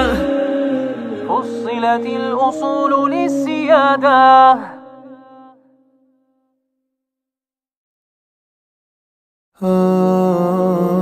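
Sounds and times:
person singing a devotional chant: 0.0 - 5.6, 9.6 - 11.0.

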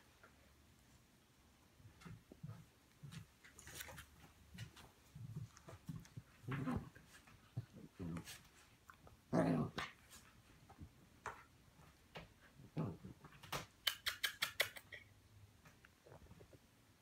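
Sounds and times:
puppies play-fighting: 2.0 - 11.6.

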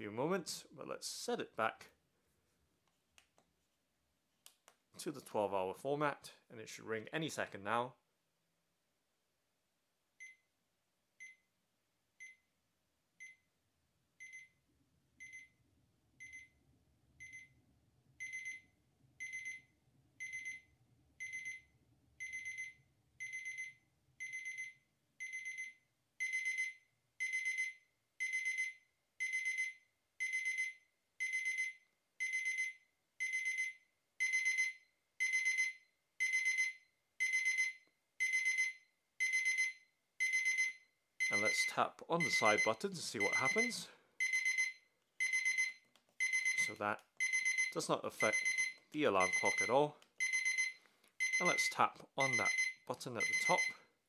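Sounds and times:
alarm clock beeping: 14.2 - 14.5, 15.2 - 15.5, 16.2 - 16.6, 17.2 - 17.5, 18.2 - 53.8.

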